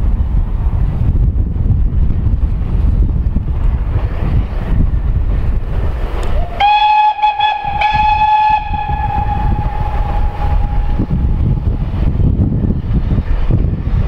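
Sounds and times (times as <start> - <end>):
wind rumble on microphone: 0.0 - 14.0
steam locomotive whistle: 6.4 - 11.6.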